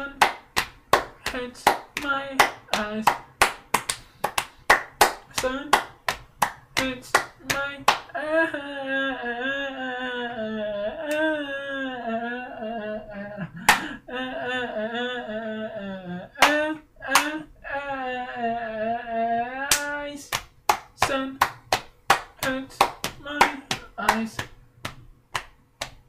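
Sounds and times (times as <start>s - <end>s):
person singing wordless notes: 0.0s - 0.3s, 1.2s - 3.2s, 6.8s - 13.2s, 22.4s - 24.6s
hand claps: 0.0s - 8.1s, 13.6s - 13.9s, 16.4s - 17.4s, 19.7s - 26.0s.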